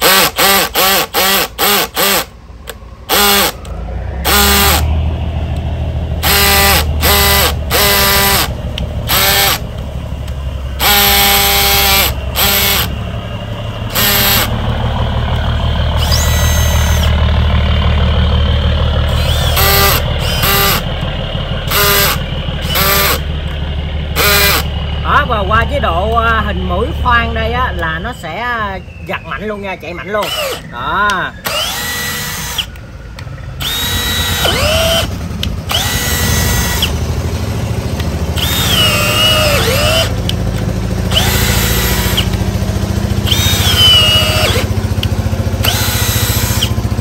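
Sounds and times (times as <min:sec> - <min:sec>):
drill motor whining in bursts: 0:00.0 - 0:05.0, 0:06.2 - 0:09.7, 0:10.8 - 0:13.0, 0:13.8 - 0:14.7, 0:15.8 - 0:18.0, 0:19.0 - 0:21.0, 0:21.6 - 0:23.2, 0:24.1 - 0:24.7, 0:29.8 - 0:32.8, 0:33.6 - 0:37.1, 0:38.3 - 0:47.0
low drone: 0:01.1 - 0:47.0.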